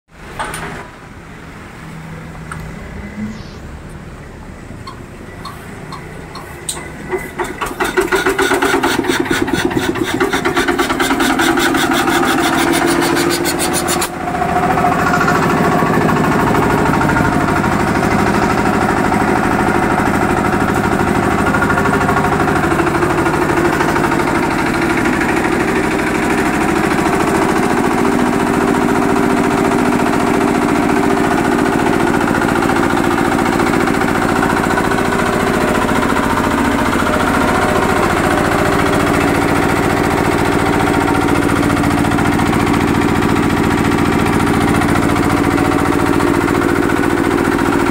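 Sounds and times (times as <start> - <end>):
diesel engine starting and running: 0.1 - 47.9
air compressor pump: 5.4 - 47.9.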